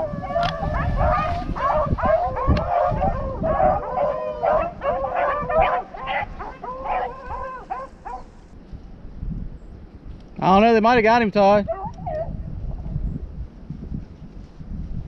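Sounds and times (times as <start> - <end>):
dogs baying: 0.0 - 8.3, 11.7 - 12.4.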